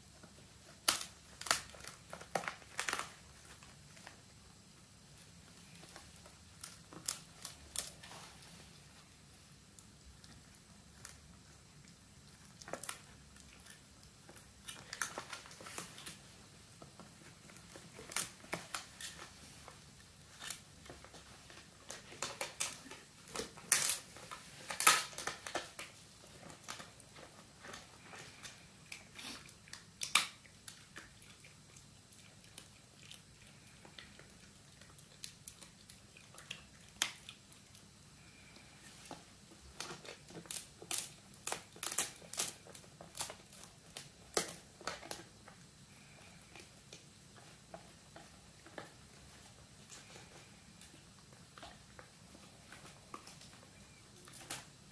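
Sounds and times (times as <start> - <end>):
puppy chewing: 9.6 - 23.6, 24.3 - 38.3.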